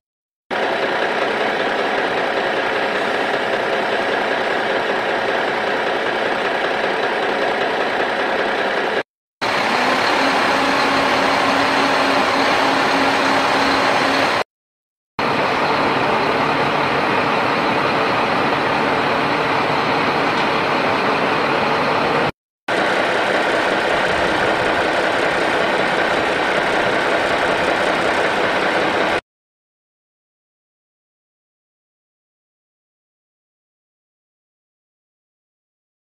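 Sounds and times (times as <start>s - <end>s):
vehicle engine running: 0.5s - 14.4s, 15.2s - 29.2s.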